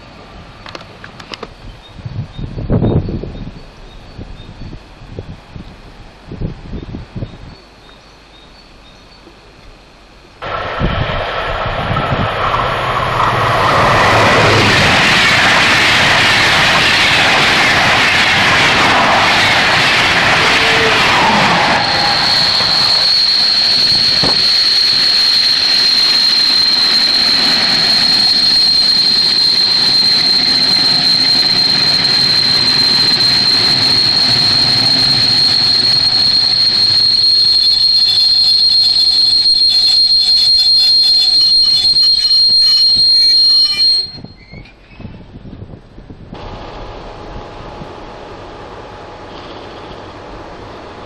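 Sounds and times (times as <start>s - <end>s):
train running noise: 0.0s - 51.0s
high-pitched wheel squeal: 12.0s - 45.1s.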